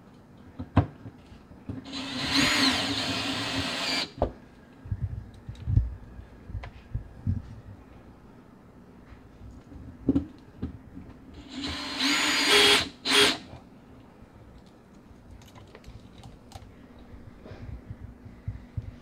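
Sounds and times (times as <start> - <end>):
cordless drill whirring: 1.9 - 4.2, 11.4 - 13.5.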